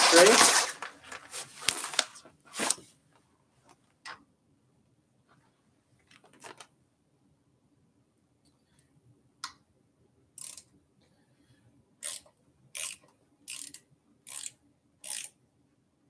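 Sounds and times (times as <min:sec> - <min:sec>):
ratchet wrench clicking: 0:10.4 - 0:10.7, 0:12.0 - 0:15.4.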